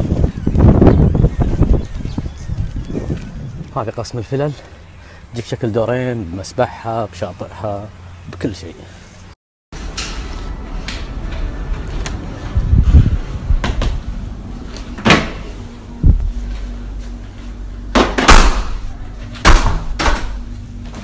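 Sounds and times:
doors opening and shutting: 9.8s - 21.0s
low rumble of moving phone: 10.2s - 18.0s.

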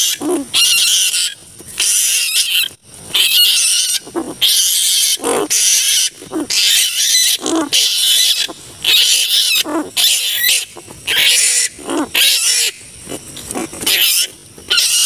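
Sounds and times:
flying foxes screeching: 0.0s - 15.0s.

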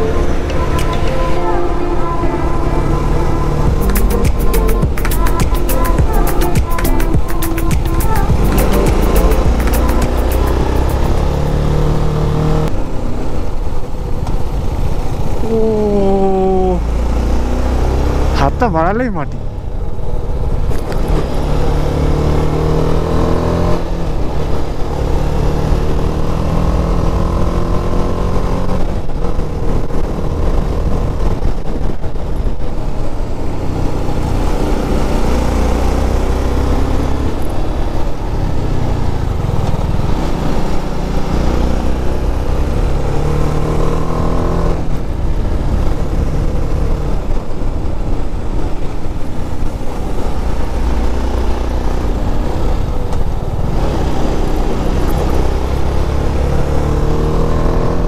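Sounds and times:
motorcycle engine running: 2.7s - 17.6s.

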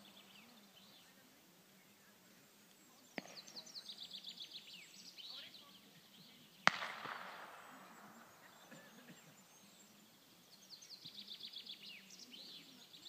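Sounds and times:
songbirds chirping: 0.0s - 13.0s
gunshot echoing: 6.6s - 8.8s.

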